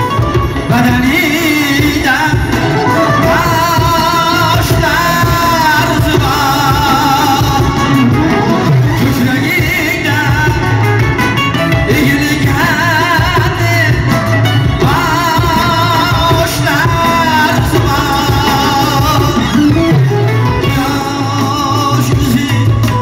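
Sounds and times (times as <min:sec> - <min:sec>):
electric guitar: 0:00.0 - 0:23.0
electronic keyboards: 0:00.0 - 0:23.0
frame drum: 0:00.0 - 0:23.0
large drum: 0:00.0 - 0:23.0
man singing with vibrato: 0:00.0 - 0:23.0.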